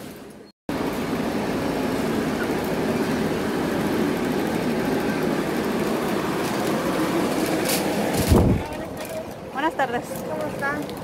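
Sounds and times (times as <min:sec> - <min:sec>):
cart wheels rolling over concrete: 0:04.6 - 0:11.0.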